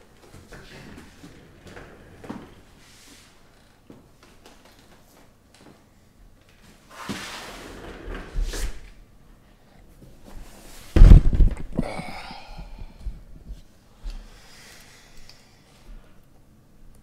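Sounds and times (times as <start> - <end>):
heavy thud of box set down: 10.9 - 11.8.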